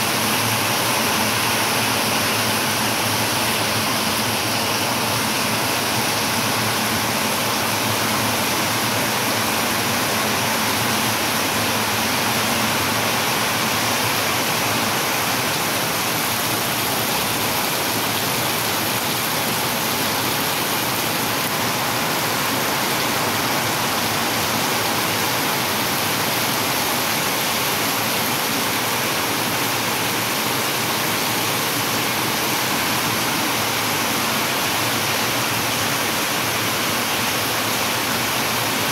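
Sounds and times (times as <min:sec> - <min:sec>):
heavy rain on paving: 0:00.0 - 0:38.9.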